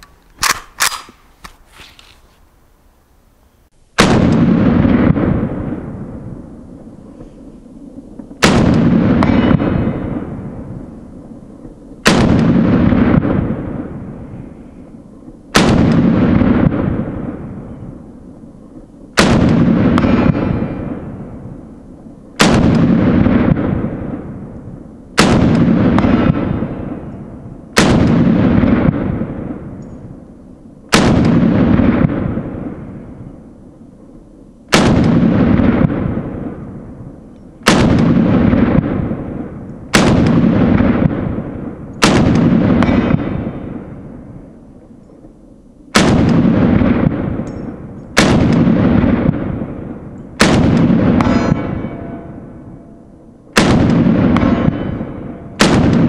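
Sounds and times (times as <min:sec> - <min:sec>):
pistol gunshots: 0:04.0 - 0:05.6, 0:08.4 - 0:10.3, 0:12.0 - 0:14.0, 0:15.5 - 0:17.8, 0:19.2 - 0:21.1, 0:22.4 - 0:24.2, 0:25.2 - 0:29.8, 0:30.9 - 0:33.0, 0:34.7 - 0:36.5, 0:37.6 - 0:44.2, 0:45.9 - 0:52.8, 0:53.5 - 0:56.0
rolling gunshot echo: 0:04.0 - 0:06.3, 0:08.2 - 0:11.0, 0:11.6 - 0:14.6, 0:15.4 - 0:18.1, 0:19.2 - 0:21.7, 0:22.4 - 0:30.2, 0:30.9 - 0:33.5, 0:34.7 - 0:44.5, 0:45.9 - 0:56.0.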